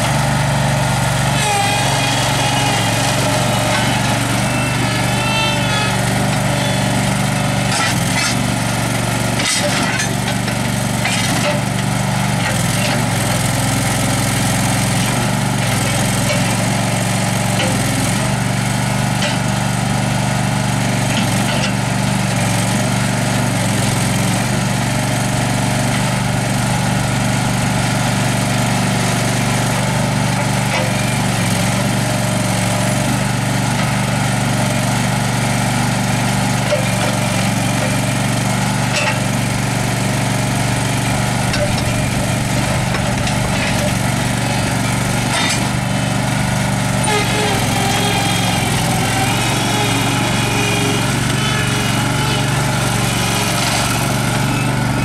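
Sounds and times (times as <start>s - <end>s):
tractor engine running: 0.0s - 55.0s.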